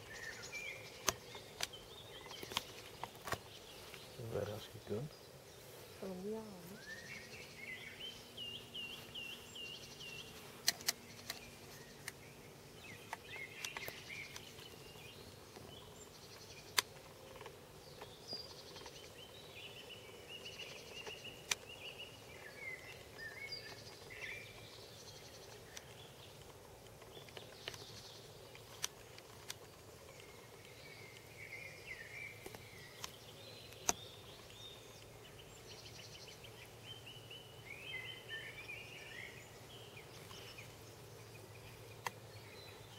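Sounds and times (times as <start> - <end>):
small birds chirping: 0.0 - 42.9
sharp clicks: 10.6 - 12.2, 13.0 - 14.8, 32.4 - 34.1, 41.9 - 42.2.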